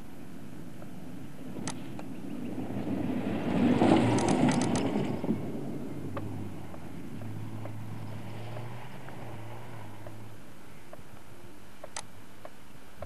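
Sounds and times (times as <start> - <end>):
distant car engine revving: 0.0 - 13.0
sharp clicks: 1.6 - 2.2, 4.0 - 5.3, 10.9 - 13.0.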